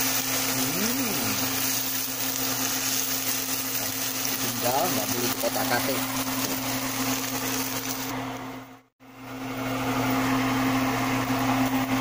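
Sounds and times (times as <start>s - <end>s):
fish sizzling in oil: 0.0s - 8.1s.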